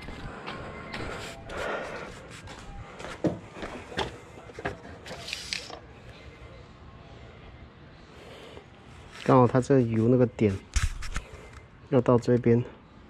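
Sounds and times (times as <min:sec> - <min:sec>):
footsteps on brick pavers: 0:00.0 - 0:04.2
brief rustle: 0:10.6 - 0:11.6.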